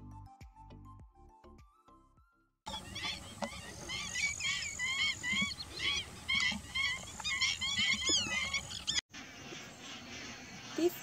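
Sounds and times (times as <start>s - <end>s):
waterbirds calling: 2.7s - 11.0s.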